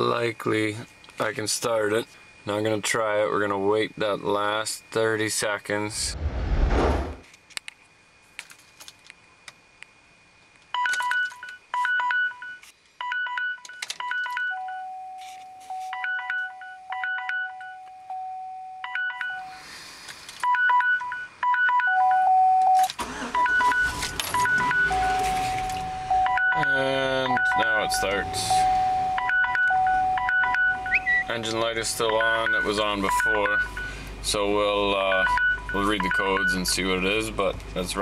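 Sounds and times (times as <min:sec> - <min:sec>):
dashboard warning beeps: 0:10.8 - 0:19.6, 0:20.4 - 0:34.1, 0:34.8 - 0:37.2
held warning tones: 0:20.4 - 0:37.6
truck engine starting and running: 0:22.8 - 0:38.0.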